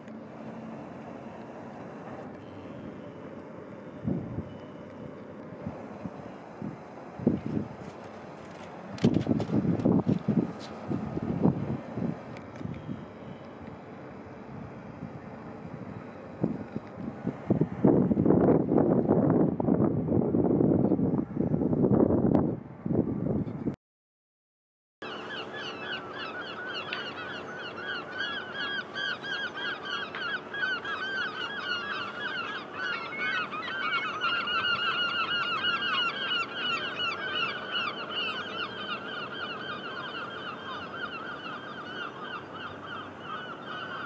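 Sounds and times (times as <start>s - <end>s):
flock of birds calling: 25.0s - 44.0s.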